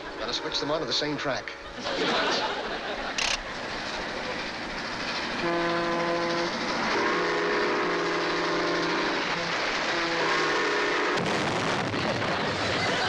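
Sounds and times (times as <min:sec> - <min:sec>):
toy train rumbling on track: 0:00.0 - 0:11.2
train horn blasts: 0:05.4 - 0:11.4.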